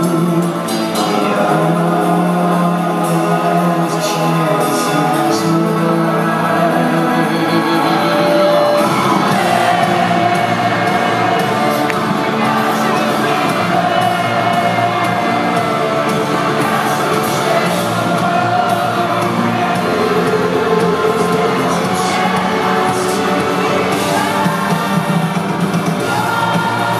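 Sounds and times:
distorted electric guitar: 0.0s - 26.9s
man singing into microphone: 0.0s - 26.9s.

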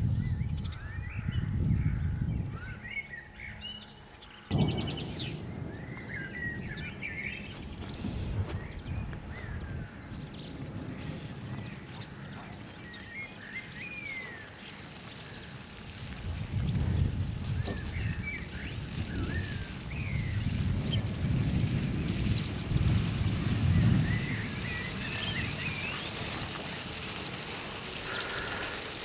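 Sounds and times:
songbirds chirping and singing: 0.0s - 15.8s
low rumble: 4.5s - 14.6s.

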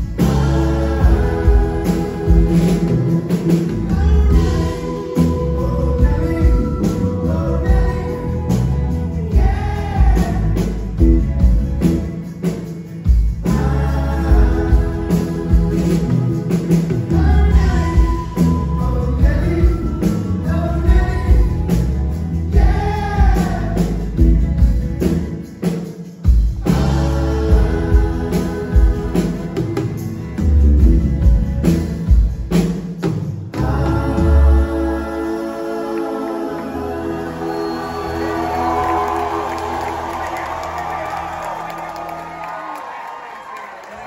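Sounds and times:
person singing: 0.0s - 12.0s, 13.4s - 24.4s, 26.6s - 30.6s, 33.5s - 41.0s
electric bass: 0.0s - 12.3s, 13.1s - 25.5s, 26.4s - 32.7s, 33.6s - 41.7s
acoustic guitar: 0.0s - 42.4s.

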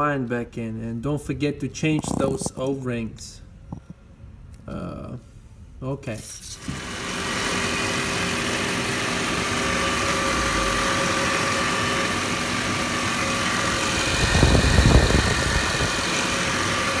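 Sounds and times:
car engine idling: 6.8s - 17.0s.

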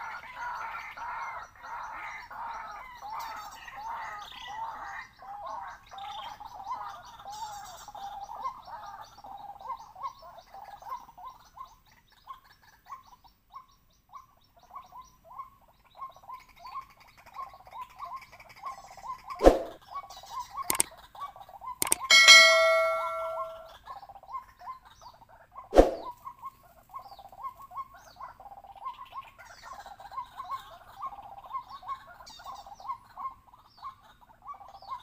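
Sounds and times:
sharp loud click: 19.4s - 19.8s, 21.8s - 23.7s, 25.8s - 26.1s
bird calling repeated notes: 21.8s - 23.7s.

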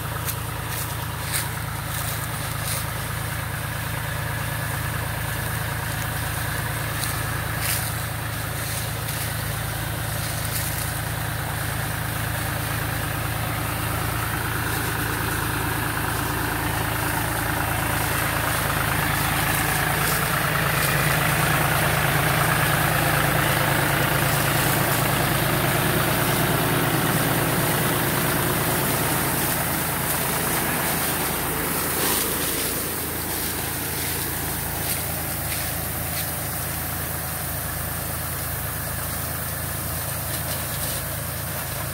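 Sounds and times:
tractor engine running: 0.0s - 41.9s.

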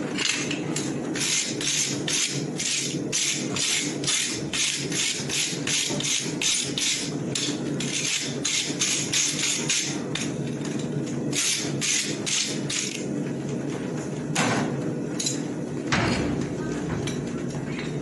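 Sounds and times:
hand tool scraping horseshoe: 1.2s - 10.3s, 11.3s - 13.0s.

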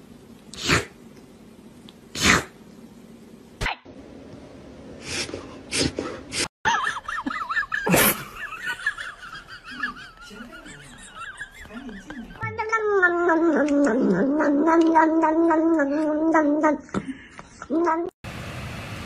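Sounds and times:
kitten sneezing: 0.6s - 1.0s, 2.2s - 2.6s.

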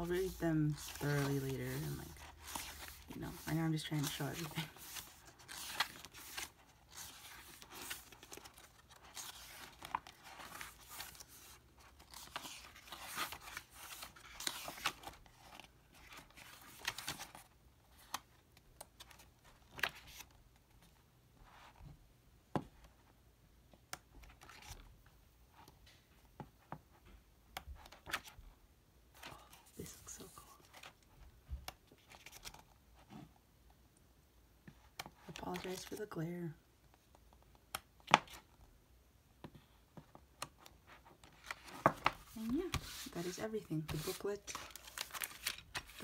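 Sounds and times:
paper pages rustling: 0.0s - 21.8s, 24.2s - 24.9s, 29.2s - 33.1s, 34.7s - 36.2s, 39.4s - 46.0s.

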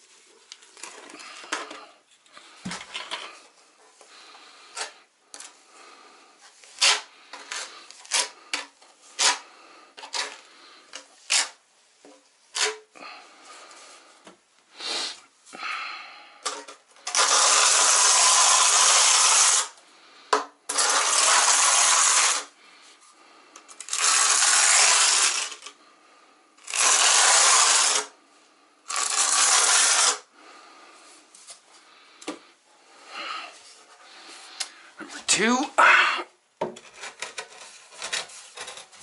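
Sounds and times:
trowel scraping tile: 6.6s - 11.6s, 12.5s - 12.9s, 16.5s - 19.7s, 20.7s - 22.5s, 23.8s - 25.7s, 26.7s - 28.1s, 28.9s - 30.3s, 36.8s - 39.0s.

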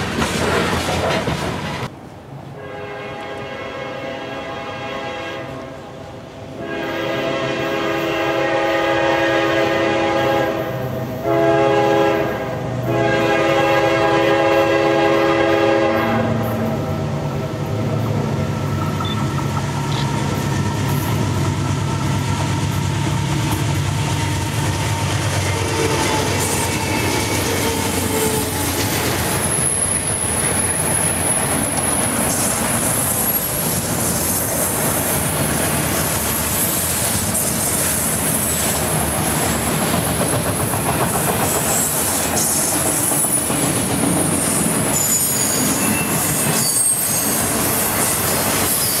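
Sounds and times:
train wheels clickety-clack: 0.0s - 1.9s, 18.0s - 49.0s
diesel locomotive engines: 0.0s - 49.0s
high wheel squeal: 44.4s - 49.0s.

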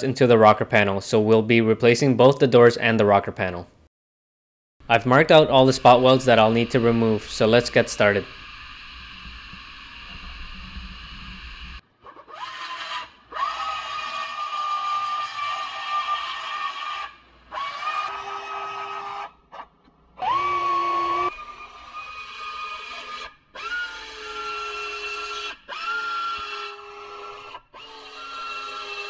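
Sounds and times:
pneumatic belt sander whining: 4.9s - 11.8s, 20.2s - 29.0s.

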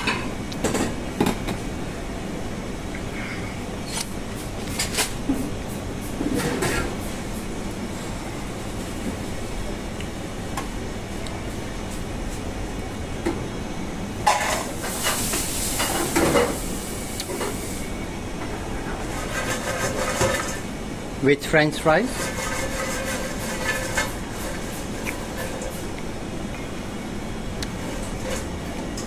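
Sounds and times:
kitchen hum: 0.0s - 29.0s
dishes clattering and scraping: 6.2s - 7.0s, 14.2s - 15.2s, 19.0s - 20.6s, 22.2s - 25.8s.

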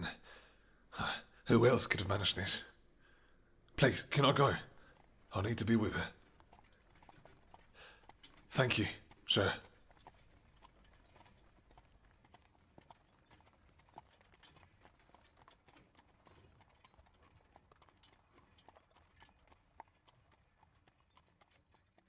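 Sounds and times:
horse hooves clip-clopping: 3.8s - 22.0s.

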